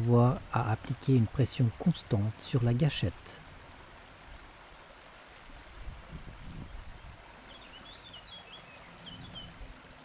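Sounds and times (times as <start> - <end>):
small bird chirping: 7.5 - 9.6.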